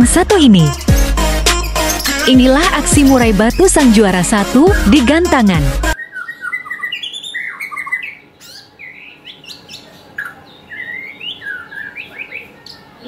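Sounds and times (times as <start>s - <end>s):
bird singing whistled notes: 6.0s - 12.9s.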